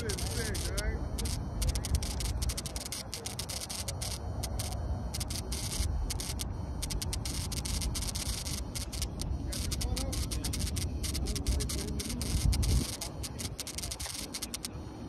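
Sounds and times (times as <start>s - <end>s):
microphone handling hiss: 0.0s - 15.0s
wind rumble on microphone: 9.2s - 14.1s.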